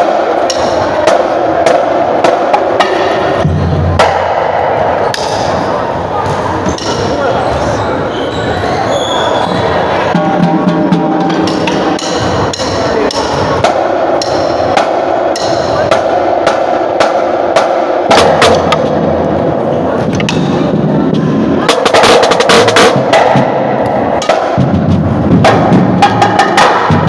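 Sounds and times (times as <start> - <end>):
crowd of voices: 0.0 - 27.0.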